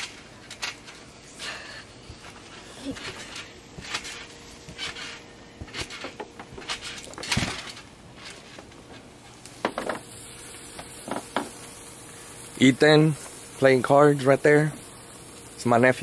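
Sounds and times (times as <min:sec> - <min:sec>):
trampoline thumps and rattles: 0:02.2 - 0:10.0.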